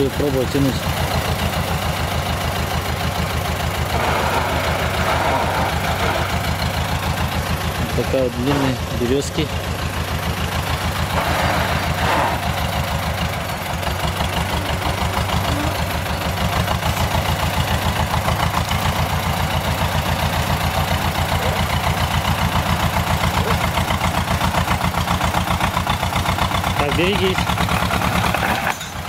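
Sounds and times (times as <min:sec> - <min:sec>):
tractor engine chugging: 0:00.0 - 0:29.0.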